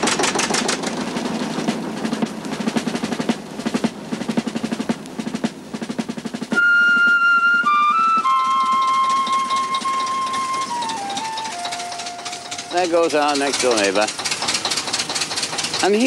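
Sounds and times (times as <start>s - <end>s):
diesel locomotive engine running: 0.0s - 16.0s
flute music: 6.5s - 13.2s.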